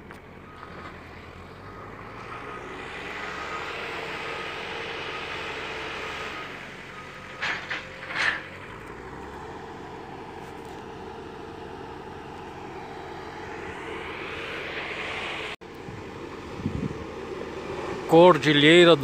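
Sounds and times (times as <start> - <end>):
road noise of vehicles: 0.0 - 19.0.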